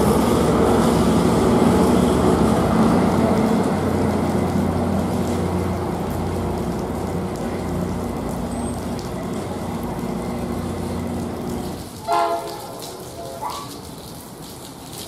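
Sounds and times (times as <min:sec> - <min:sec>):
locomotive engine drone: 0:00.0 - 0:14.0
rain: 0:00.0 - 0:15.0
train horn blast: 0:12.0 - 0:13.9.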